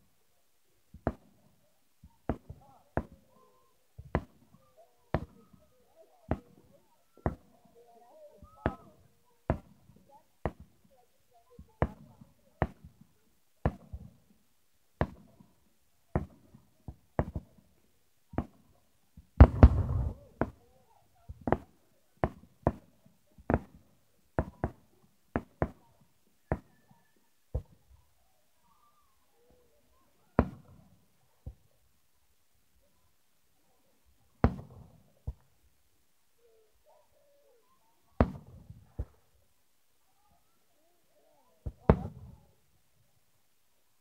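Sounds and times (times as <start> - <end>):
fireworks bangs and pops: 19.2 - 20.6, 21.3 - 23.8, 30.4 - 30.8, 34.4 - 35.5, 38.2 - 39.2, 41.6 - 42.4
loud long firework blast: 19.4 - 20.2.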